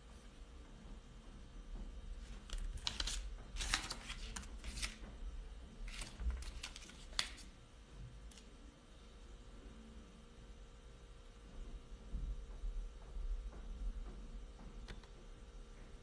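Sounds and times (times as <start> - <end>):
low room hum: 0.0 - 16.0
rustling handling noises: 2.1 - 5.2, 5.8 - 7.5.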